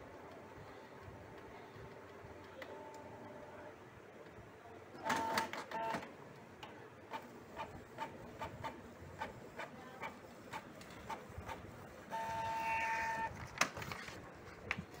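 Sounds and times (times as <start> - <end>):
short printer tones: 5.0 - 6.0, 12.1 - 13.3
printer clicking and clattering: 5.0 - 12.4.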